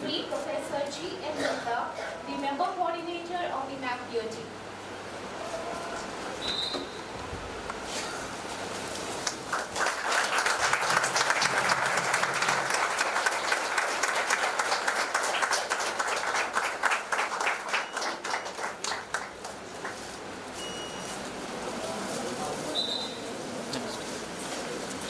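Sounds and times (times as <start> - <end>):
audience applauding: 9.2 - 20.1.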